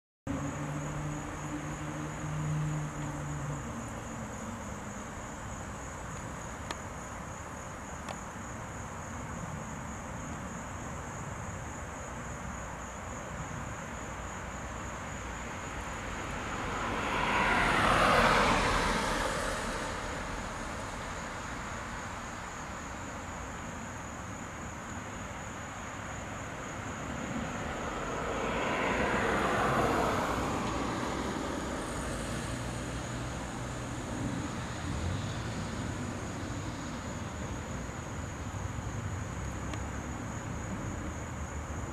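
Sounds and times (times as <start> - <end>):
vehicle passing: 0.3 - 4.9, 15.7 - 22.3, 26.8 - 37.3.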